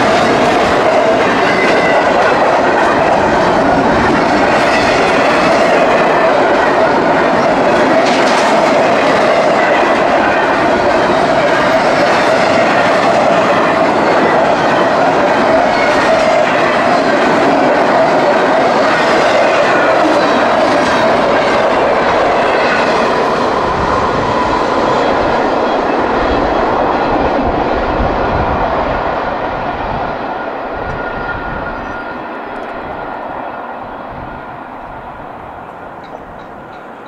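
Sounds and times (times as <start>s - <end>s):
wheels clicking over rail joints: 0.0s - 25.6s, 35.6s - 37.0s
freight train rolling past: 0.0s - 37.0s.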